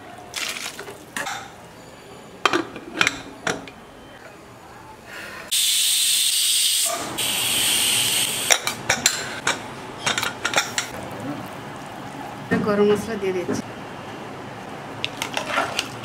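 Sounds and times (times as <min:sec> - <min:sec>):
steam hissing: 0:05.5 - 0:08.6.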